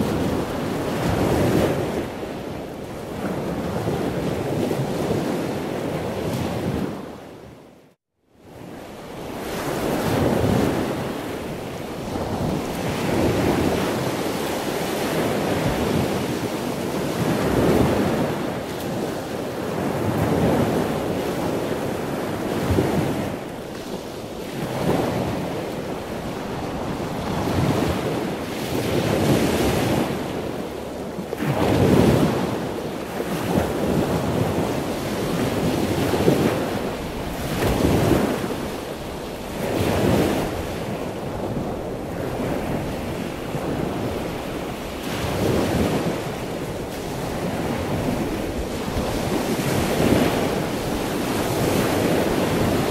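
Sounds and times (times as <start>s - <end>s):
sea waves washing in: 0.0s - 7.4s, 8.4s - 52.9s.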